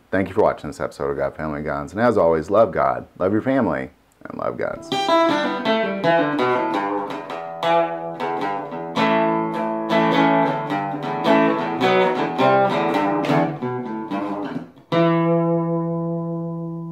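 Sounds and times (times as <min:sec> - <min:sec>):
guitar plucked and strummed: 0:04.7 - 0:16.9.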